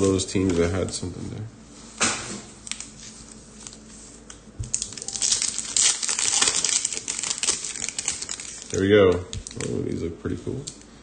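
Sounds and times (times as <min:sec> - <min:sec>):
card pack crinkling: 0:02.6 - 0:03.9, 0:04.6 - 0:10.0.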